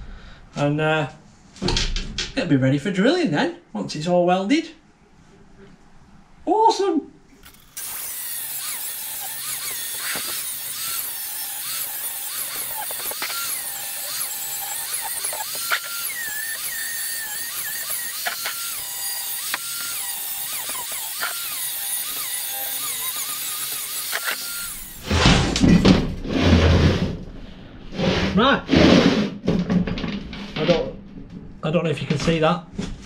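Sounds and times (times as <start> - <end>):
angle grinder grinding steel: 7.5 - 25.8.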